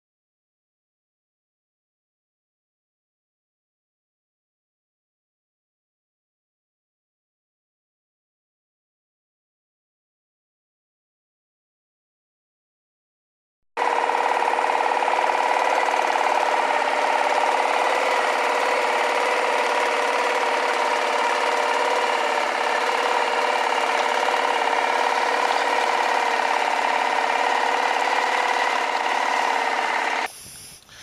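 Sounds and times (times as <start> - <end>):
boat motor droning: 13.8 - 30.3.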